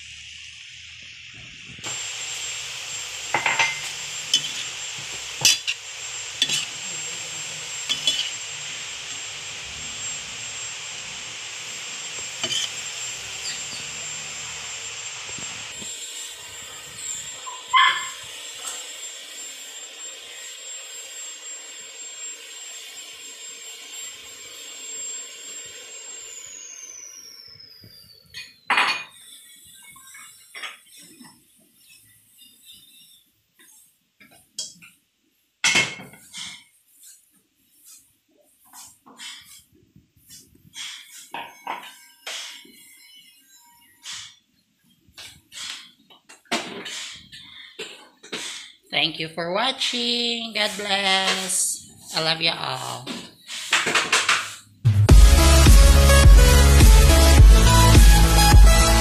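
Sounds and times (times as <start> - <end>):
food sizzling in a pan: 0.0 - 31.3, 50.5 - 54.7
metal utensil scraping pan: 3.3 - 8.9, 12.2 - 13.9.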